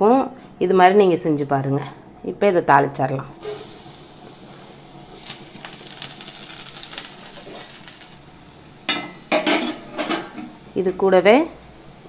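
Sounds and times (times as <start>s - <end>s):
seeds and garlic sizzling in oil: 3.4s - 12.0s.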